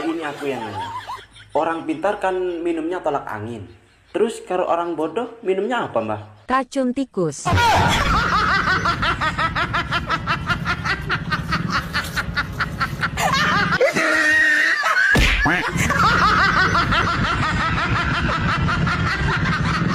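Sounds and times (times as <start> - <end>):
person laughing: 7.6 - 19.9.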